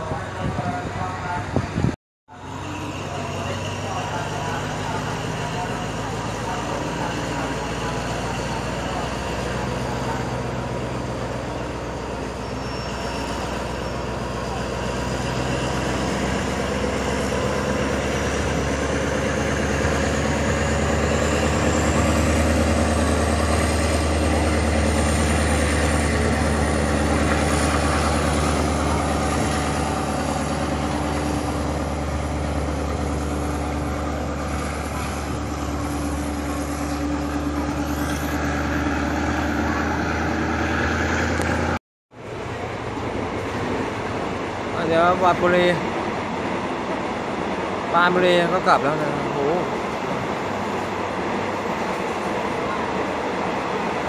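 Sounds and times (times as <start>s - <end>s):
diesel train engine humming: 0.0s - 54.0s.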